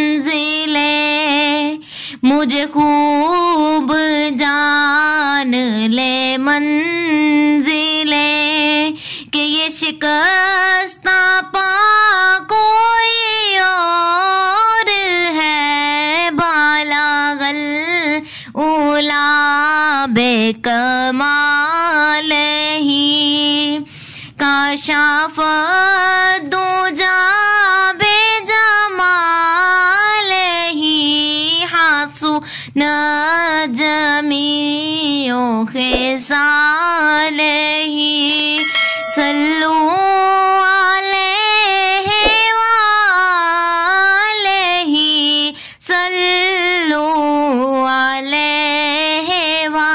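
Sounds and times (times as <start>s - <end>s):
person singing unaccompanied: 0.0s - 23.8s, 24.4s - 49.9s
singer breathing: 1.8s - 2.2s, 8.9s - 9.3s, 18.2s - 18.6s, 23.8s - 24.4s, 32.4s - 32.8s, 45.5s - 45.8s.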